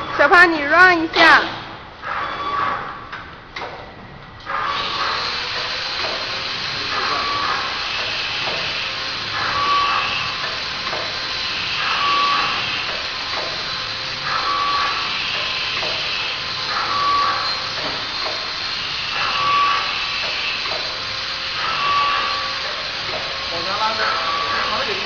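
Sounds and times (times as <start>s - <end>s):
packing machine running: 0.0s - 25.0s
constant mechanical hiss: 3.1s - 25.0s.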